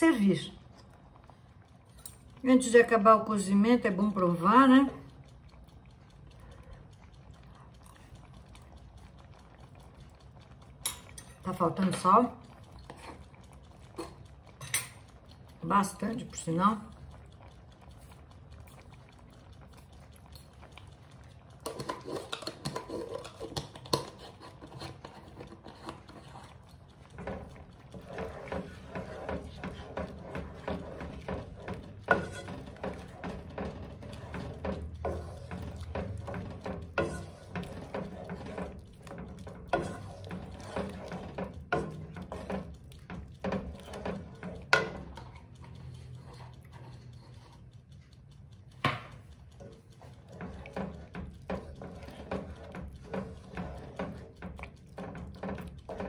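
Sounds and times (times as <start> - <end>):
spoon stirring thick soup: 0.0 - 56.0
spoon knocking and scraping pan: 21.6 - 45.4, 48.8 - 56.0.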